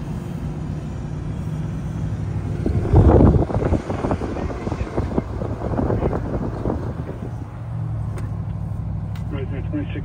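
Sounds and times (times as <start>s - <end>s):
vehicle running with low hum: 0.0s - 10.0s
wind buffeting microphone: 2.4s - 7.7s.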